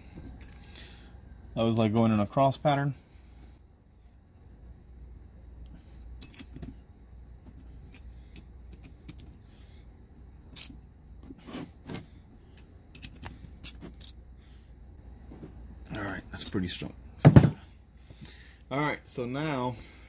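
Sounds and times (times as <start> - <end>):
faint steady hum: 0.0 - 20.0
metal parts clicking and tapping: 6.2 - 6.8, 7.5 - 9.4, 12.6 - 14.2.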